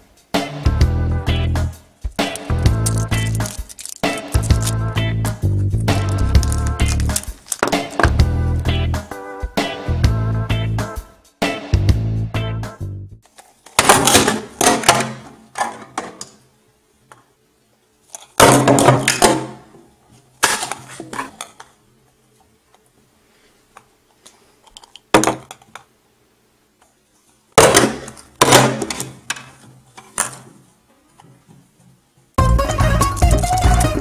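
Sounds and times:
plastic eggs clattering on table: 2.3s - 4.8s, 6.0s - 8.1s.

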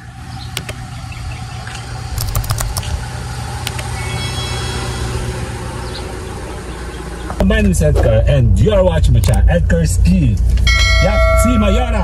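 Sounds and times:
car engine humming: 0.0s - 12.0s
sharp clicks and knocks: 2.2s - 2.9s.

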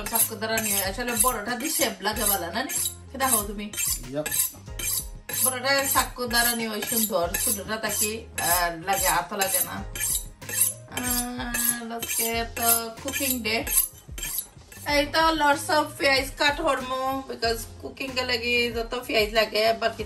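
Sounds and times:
knife scraping on honing rod: 0.0s - 15.0s.

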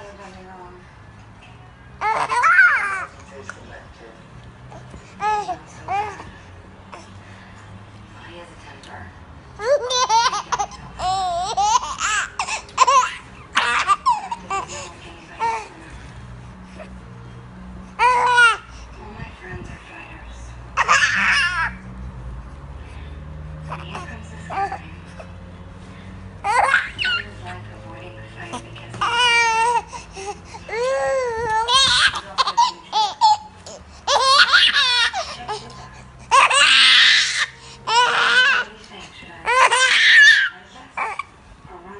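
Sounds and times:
baby laughing: 2.0s - 3.1s, 9.6s - 15.7s, 20.8s - 21.8s, 26.4s - 27.4s, 29.0s - 38.7s.

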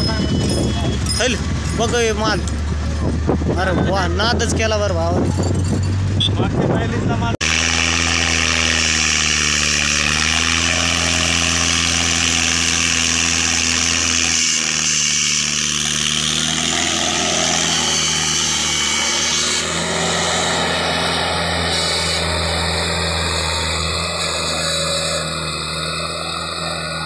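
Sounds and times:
tractor diesel engine running: 0.0s - 4.2s, 8.3s - 27.0s.

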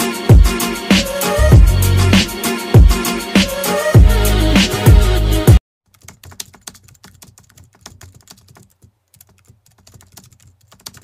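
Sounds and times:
intro music: 0.0s - 5.6s.

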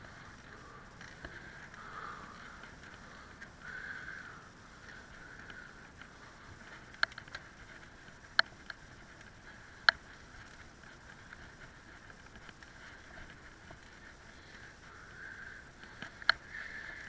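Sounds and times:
bicycle tyres rolling on pavement: 0.0s - 17.0s
sharp clicks: 6.9s - 7.5s.

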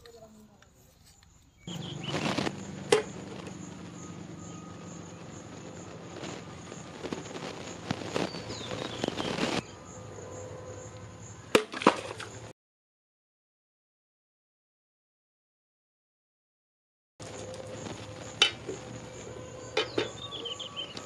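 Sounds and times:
steady low hum: 0.0s - 11.5s.

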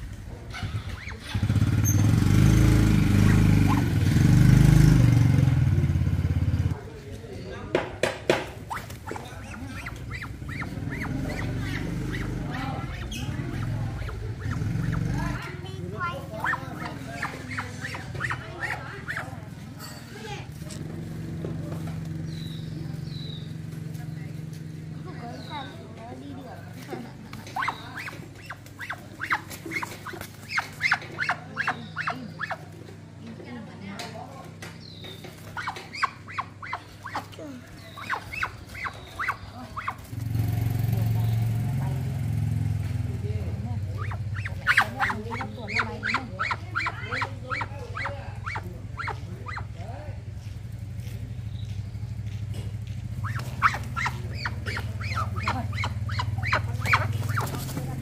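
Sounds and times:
animal giving short high calls: 53.2s - 57.5s.

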